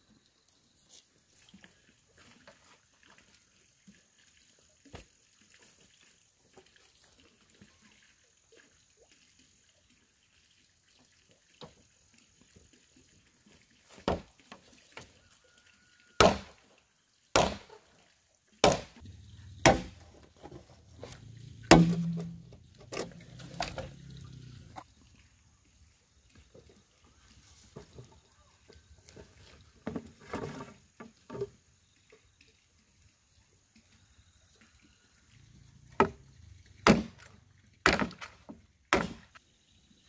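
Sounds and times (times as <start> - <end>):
machete chopping bamboo: 16.2 - 16.6, 17.4 - 17.8, 18.6 - 19.0, 19.6 - 20.0, 21.7 - 23.8, 36.8 - 39.4.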